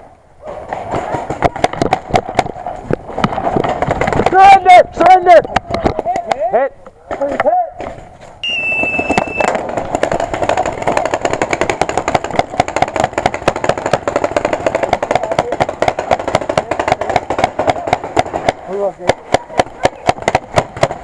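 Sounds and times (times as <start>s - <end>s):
rapid paintball fire pops: 0.6s - 4.4s, 8.8s - 21.0s.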